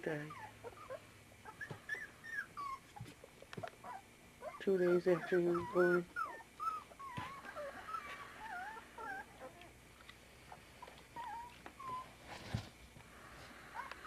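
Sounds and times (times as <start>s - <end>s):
puppies whimpering: 0.1s - 9.8s, 10.5s - 12.2s, 13.5s - 14.0s.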